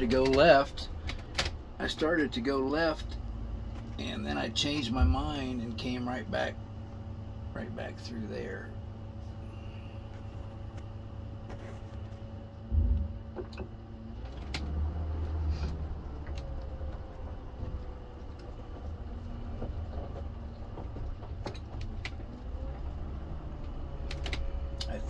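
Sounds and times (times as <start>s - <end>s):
rattles and clicks: 0.0s - 1.6s, 15.6s - 25.0s
engine and road rumble: 0.0s - 25.0s
heavy thump: 12.7s - 13.6s.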